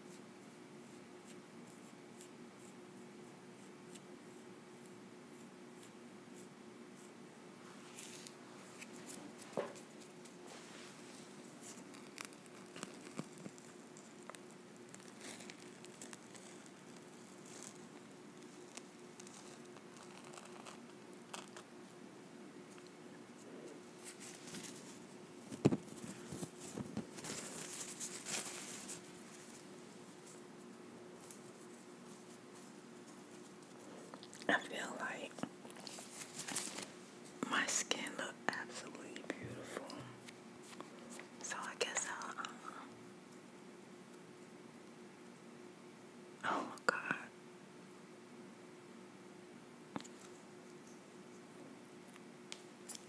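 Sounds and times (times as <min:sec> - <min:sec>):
sticky crackles: 0:11.1 - 0:21.7
face mask peeling from skin: 0:11.2 - 0:21.7, 0:35.7 - 0:36.9
film crumpled in hands: 0:24.0 - 0:29.6, 0:35.8 - 0:36.9.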